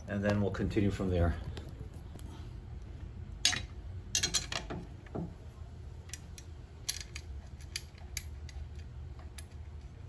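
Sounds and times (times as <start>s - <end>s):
small metal clicks: 6.0s - 9.9s.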